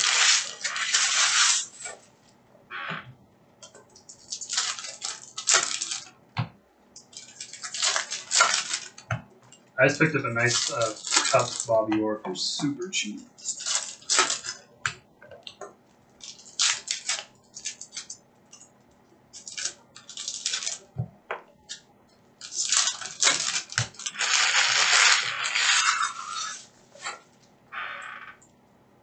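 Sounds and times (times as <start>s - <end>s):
foil wrappers crinkling and tearing: 0.0s - 2.0s, 4.0s - 6.1s, 7.0s - 9.0s, 9.8s - 11.9s, 13.3s - 14.6s, 16.2s - 18.2s, 19.4s - 20.9s, 22.4s - 27.2s.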